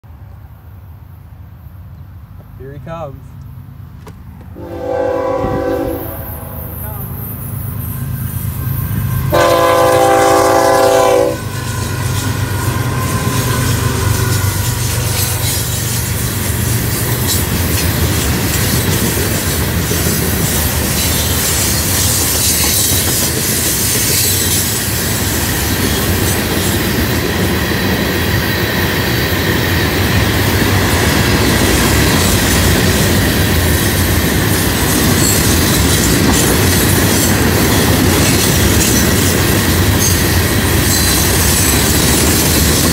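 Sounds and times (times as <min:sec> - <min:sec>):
train wheels rumbling over rails: 0:03.3 - 0:42.9
train horn blast: 0:04.6 - 0:07.1, 0:09.2 - 0:11.6.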